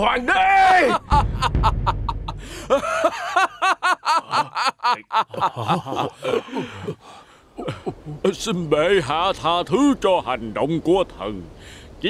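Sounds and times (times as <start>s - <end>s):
man laughing mockingly: 0.8s - 8.2s
low rumble: 1.1s - 3.0s.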